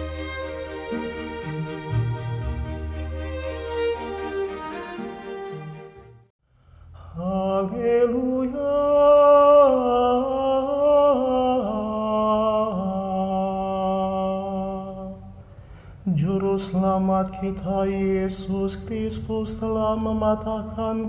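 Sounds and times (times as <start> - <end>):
music: 0.0 - 6.3
man singing chant unaccompanied: 7.0 - 15.3, 16.0 - 21.0.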